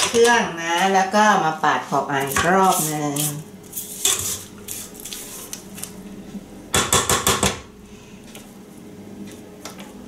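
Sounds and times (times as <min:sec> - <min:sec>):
spatula scraping metal bowl: 0:02.2 - 0:05.6
spatula knocking on bowl: 0:06.7 - 0:07.6.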